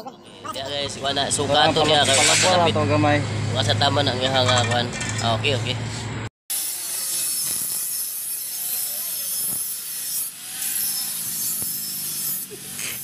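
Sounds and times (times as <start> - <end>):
metal grinding rasp: 1.6 - 2.8, 6.0 - 13.0.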